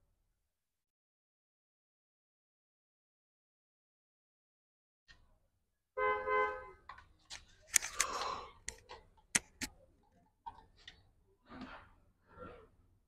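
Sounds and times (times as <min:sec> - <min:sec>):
sharp clicks: 0:07.7 - 0:09.8.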